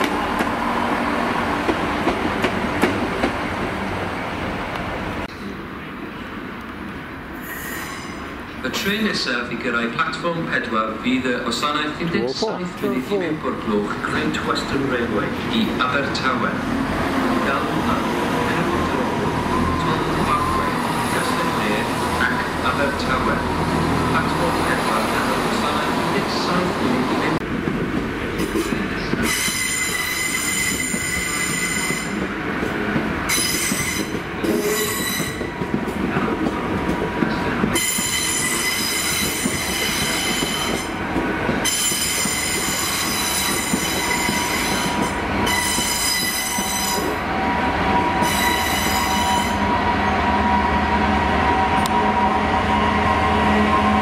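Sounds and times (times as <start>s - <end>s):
train wheels squealing: 7.4s - 8.3s, 29.2s - 32.2s, 33.3s - 35.6s, 37.8s - 40.9s, 41.6s - 47.2s, 48.2s - 50.2s
diesel locomotive engine droning: 10.8s - 54.0s.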